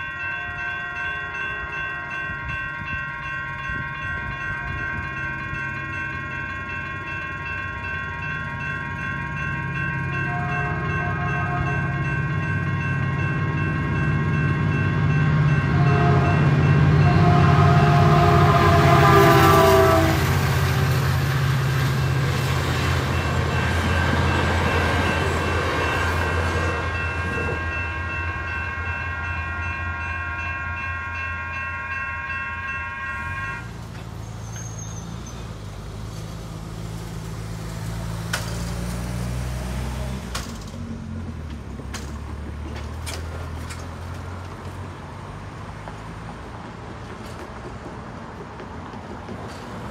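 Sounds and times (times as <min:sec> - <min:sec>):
crossing bells ringing: 0:00.0 - 0:38.3
train rumbling: 0:00.0 - 0:49.9
car engines humming: 0:33.1 - 0:49.9.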